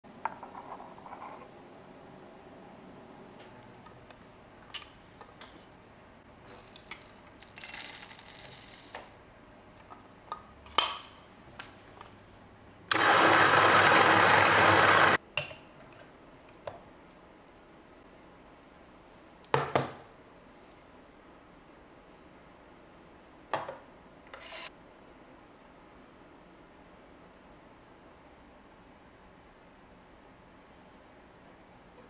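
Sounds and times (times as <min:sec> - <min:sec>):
coffee grinder grinding: 0:12.9 - 0:15.2.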